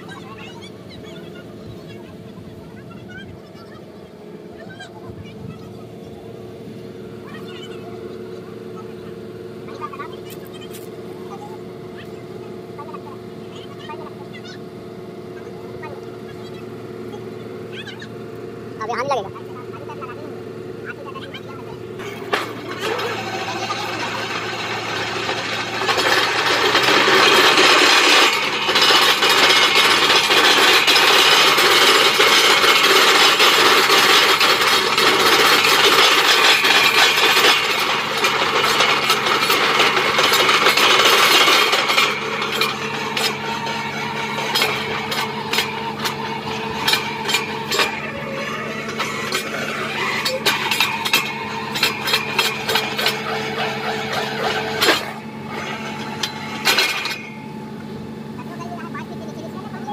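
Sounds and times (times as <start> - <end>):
drilling rig engine hum: 0.0 - 59.9
drill rod clicks and rattles: 22.0 - 57.5.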